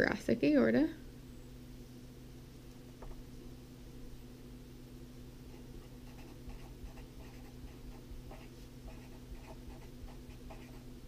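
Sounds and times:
faint low hum: 0.0 - 11.0
marker pen writing on paper: 5.5 - 10.9.

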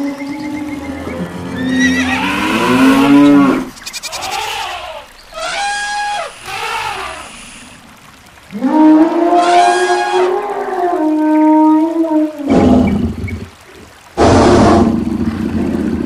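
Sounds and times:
animal calls: 0.4 - 7.8.

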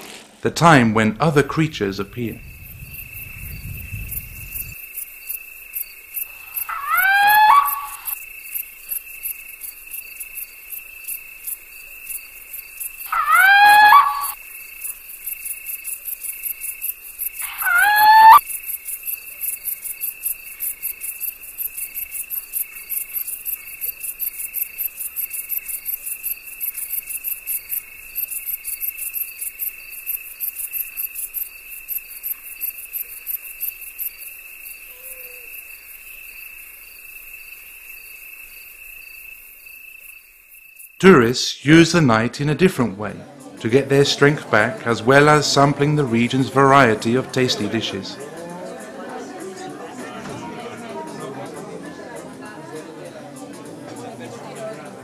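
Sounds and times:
crickets trilling: 2.1 - 41.0
animal rising call: 6.3 - 8.2, 13.1 - 14.4, 17.4 - 18.4.

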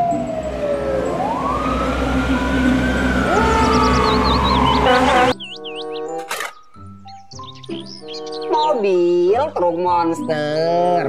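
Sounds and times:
low engine rumble: 0.0 - 5.3
fire engine siren wailing: 0.0 - 5.4
second siren rising: 0.0 - 5.4.

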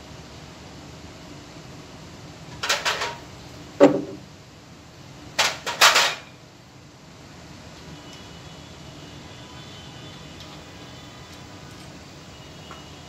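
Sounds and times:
tool parts knocking and clattering: 2.6 - 3.2, 3.8 - 4.2, 5.4 - 6.3.

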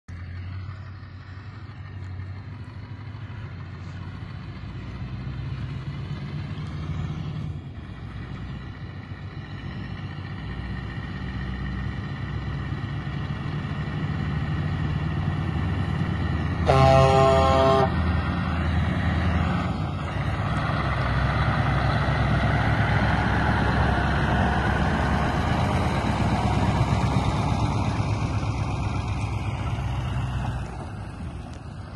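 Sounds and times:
diesel truck engine passing: 0.1 - 31.9
truck horn: 16.6 - 18.0.

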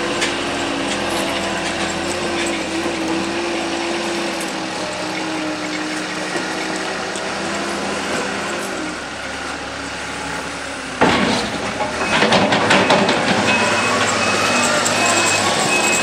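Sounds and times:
diesel engine running: 0.0 - 16.0
reversing alarm beeping: 11.9 - 16.0.

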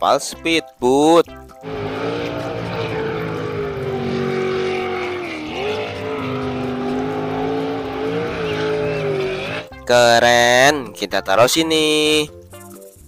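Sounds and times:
racing boat engine at high revs: 1.6 - 9.8.

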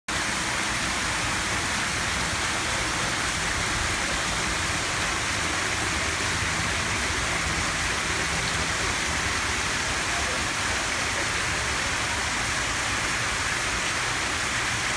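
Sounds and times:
fountain water splashing into pool: 0.1 - 14.9.

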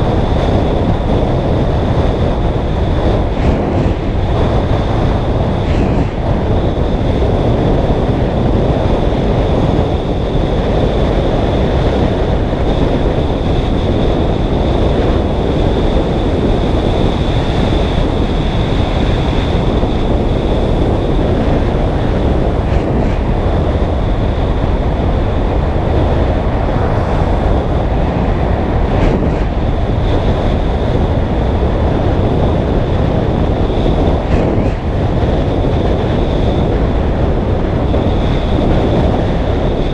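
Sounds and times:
wind rushing over microphone: 0.0 - 39.9
high-pitched whine: 12.9 - 31.2.

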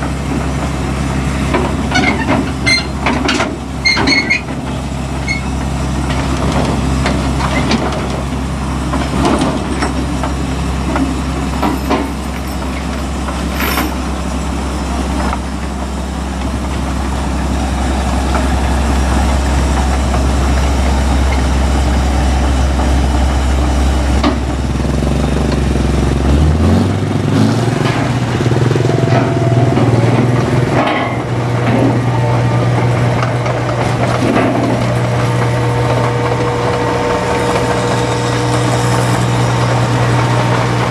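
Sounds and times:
combine harvester engine running: 0.0 - 40.9
metal clanks: 11.6 - 14.0.

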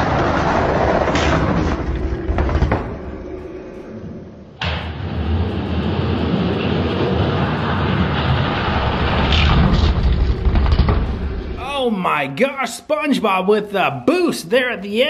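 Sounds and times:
steady rumble: 0.0 - 11.6.

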